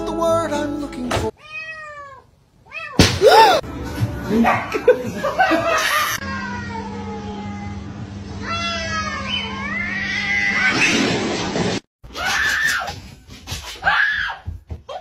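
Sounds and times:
cats yowling: 8.4 - 10.8.

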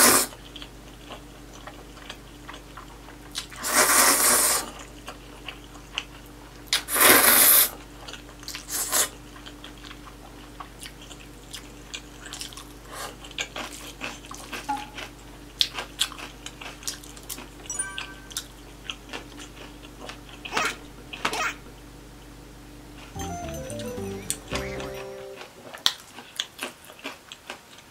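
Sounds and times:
wet chewing with mouth clicks: 9.3 - 17.6.

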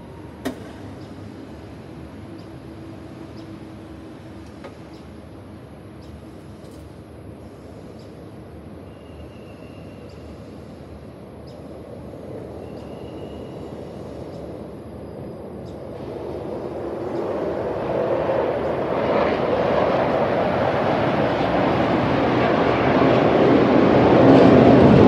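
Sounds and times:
distant city traffic rumble: 0.0 - 25.0.

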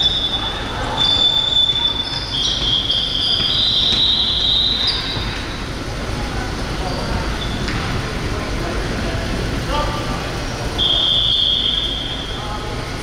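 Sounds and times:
basketball shoes squeaking: 0.0 - 5.8, 6.8 - 7.9
gym background noise: 0.0 - 13.0.

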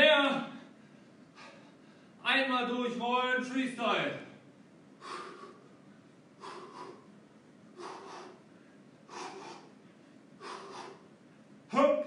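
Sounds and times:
man's sharp forceful breaths: 0.6 - 2.2, 5.0 - 11.7.

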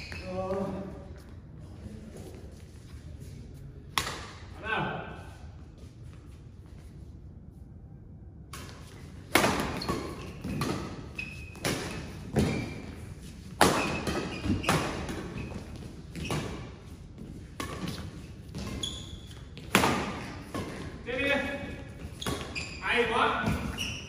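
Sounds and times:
shoes squeaking on court: 0.0 - 0.9, 8.8 - 20.9, 21.9 - 24.0
rackets hitting shuttlecock: 3.9 - 4.5, 8.5 - 12.9, 13.5 - 16.8, 17.4 - 22.6.

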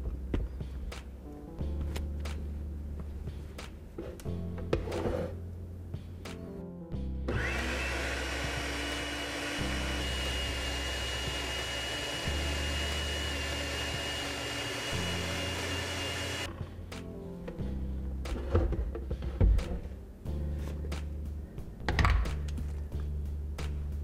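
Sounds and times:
blender motor whining: 7.3 - 16.5.

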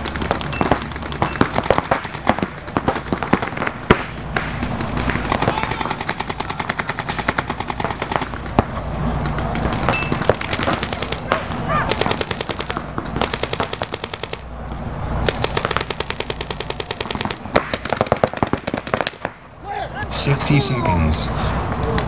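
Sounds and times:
paintball markers popping: 0.0 - 14.0.

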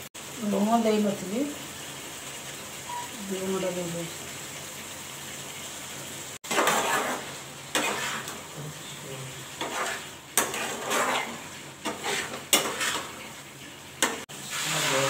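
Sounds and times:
curry sizzling: 0.0 - 15.0
metal spatula scraping a pan: 6.4 - 8.9, 9.5 - 15.0.

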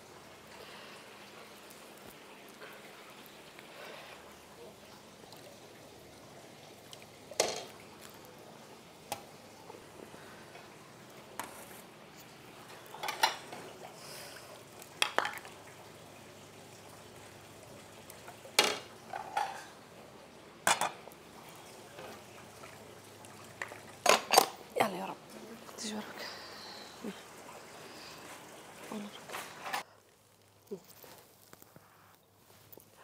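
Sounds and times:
dishes and utensils clinking: 7.4 - 7.8, 12.7 - 13.7, 18.6 - 19.8, 20.6 - 21.0, 23.6 - 24.6.

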